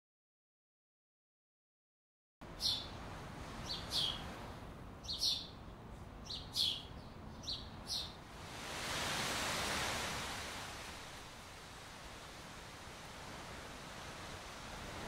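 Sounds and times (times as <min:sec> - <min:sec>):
soft outdoor hiss: 0:02.4 - 0:15.0
small bird chirping: 0:02.6 - 0:02.9, 0:03.6 - 0:04.2, 0:05.0 - 0:05.6, 0:06.2 - 0:08.2
broad rushing noise: 0:08.2 - 0:15.0.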